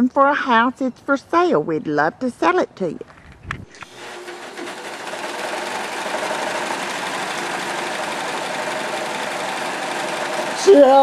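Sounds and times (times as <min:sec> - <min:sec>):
overlock sewing machine running: 0:03.8 - 0:11.0.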